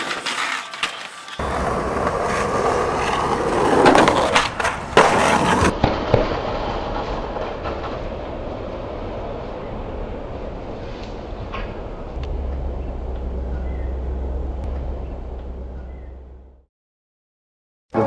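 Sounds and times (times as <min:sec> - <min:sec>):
skateboard wheels rolling: 0:00.0 - 0:12.2.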